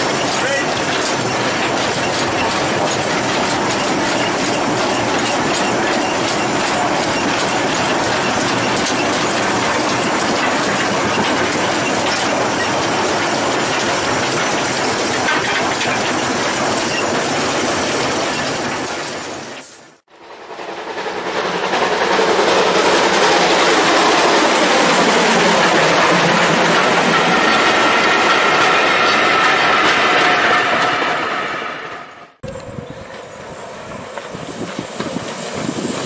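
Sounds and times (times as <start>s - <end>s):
train wheels clattering over rails: 0.0s - 36.0s
hissing steam: 33.1s - 36.0s.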